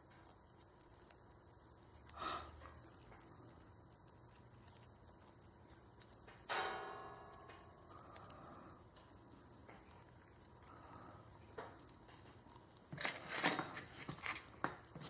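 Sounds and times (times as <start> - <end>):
sharp metallic clink: 6.5 - 7.5.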